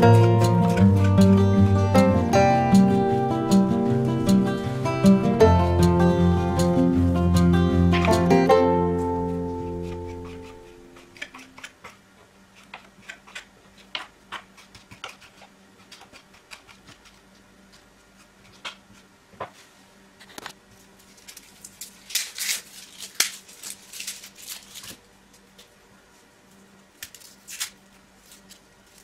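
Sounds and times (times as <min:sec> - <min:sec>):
knife chopping on wooden board: 0:09.6 - 0:12.0.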